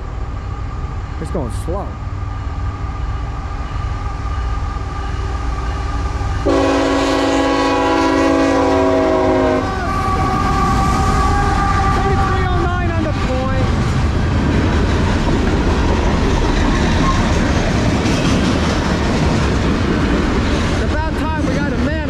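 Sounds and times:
train rumbling: 0.0 - 22.0
locomotive horn blast: 6.4 - 12.4.

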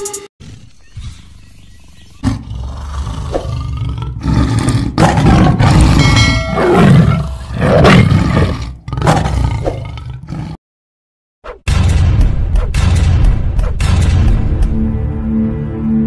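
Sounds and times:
tiger roaring: 2.2 - 10.6.

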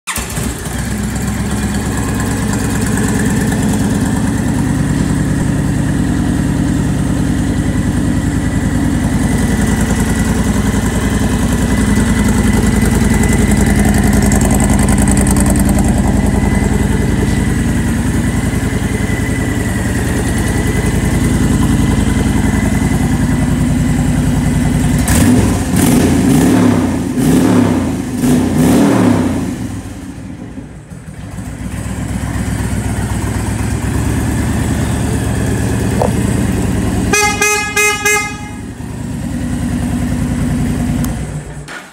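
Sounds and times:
motorcycle engine idling and revving: 0.1 - 41.9.

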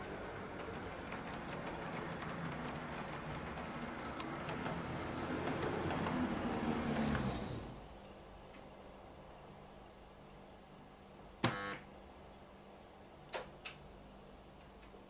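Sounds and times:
wheels clicking over rail joints: 0.0 - 7.8.

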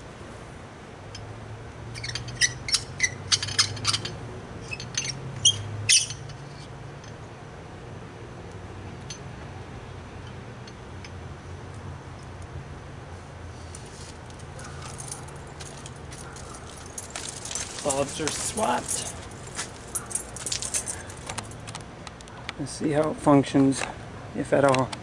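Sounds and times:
glass bulbs clinking and clicking: 2.0 - 7.2, 14.3 - 21.4.

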